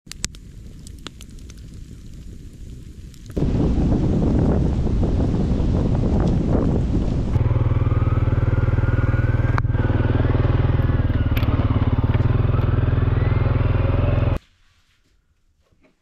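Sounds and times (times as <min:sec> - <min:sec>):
wind buffeting microphone: 0:00.1 - 0:14.4
atv engine running: 0:03.4 - 0:14.4.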